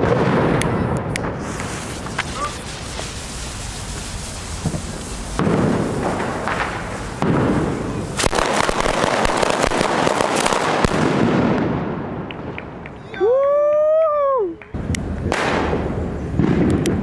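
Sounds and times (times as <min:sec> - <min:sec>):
firework sharp cracks: 0:00.0 - 0:13.0, 0:14.6 - 0:17.0
firework hissing: 0:00.4 - 0:11.8.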